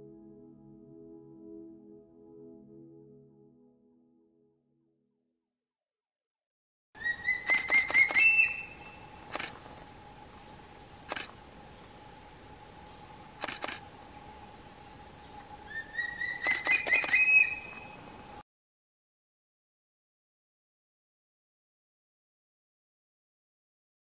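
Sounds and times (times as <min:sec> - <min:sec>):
eagle high whistled calls: 0:07.0 - 0:09.2, 0:15.7 - 0:18.0
sharp clicks: 0:07.4 - 0:08.3, 0:09.3 - 0:09.6, 0:11.1 - 0:11.4, 0:13.4 - 0:13.8, 0:16.4 - 0:17.3.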